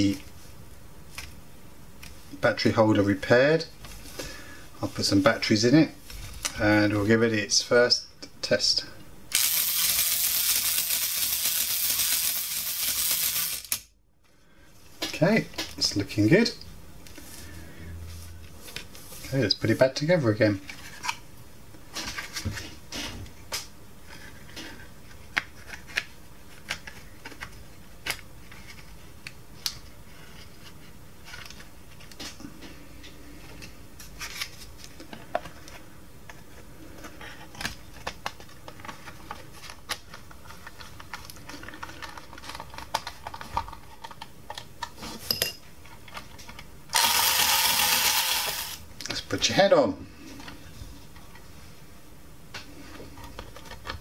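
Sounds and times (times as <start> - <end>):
low steady background noise: 0.0 - 54.0
plastic parts clicking: 37.5 - 44.9.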